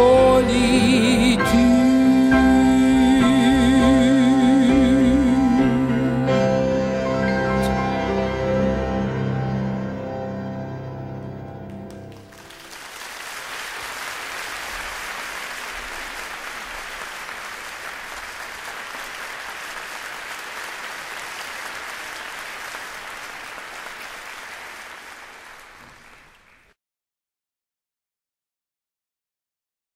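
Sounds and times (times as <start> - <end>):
audience applauding: 11.6 - 26.8.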